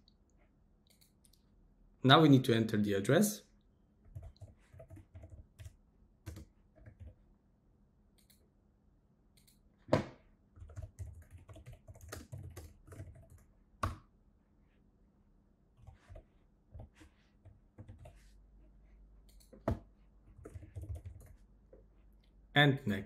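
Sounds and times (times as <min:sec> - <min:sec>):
quiet typing on keyboard: 0:04.0 - 0:07.2, 0:10.5 - 0:14.0, 0:15.8 - 0:18.4, 0:19.2 - 0:21.8.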